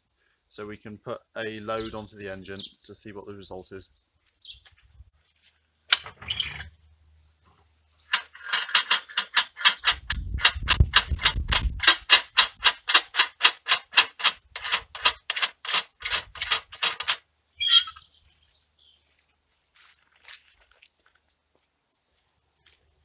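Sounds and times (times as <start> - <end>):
rapid metallic clicking: 8.1 - 17.2.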